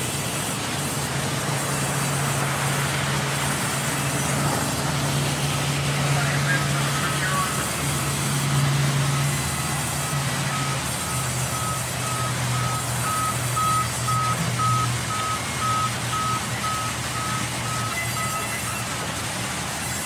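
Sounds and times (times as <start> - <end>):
band saw cutting wood: 0.0 - 14.6
short high electronic beep: 10.6 - 18.9.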